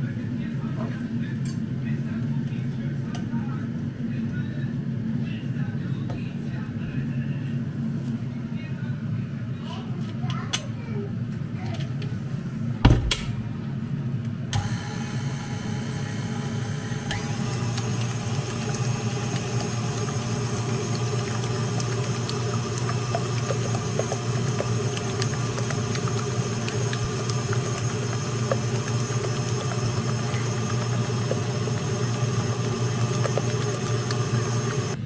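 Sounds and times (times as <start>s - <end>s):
sharp knock: 12.8s - 13.4s
electric mixer running: 14.6s - 35.0s.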